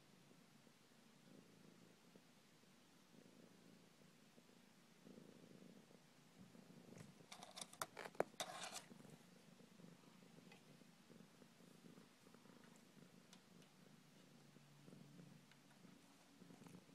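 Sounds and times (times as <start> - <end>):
cat purring: 0.0 - 16.9
scrabbling clicks and scrapes: 7.0 - 8.9.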